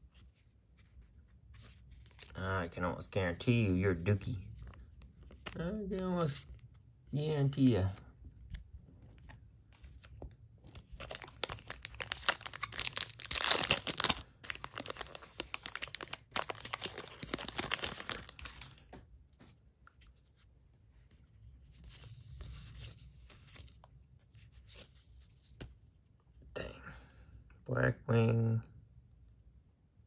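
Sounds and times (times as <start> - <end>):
foil wrappers tearing and crinkling: 11.0 - 18.8.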